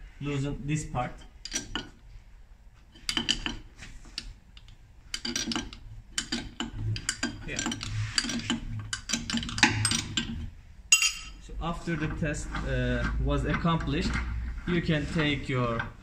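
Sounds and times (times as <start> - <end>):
spanner clinking and scraping on metal: 1.2 - 2.2, 2.9 - 16.0.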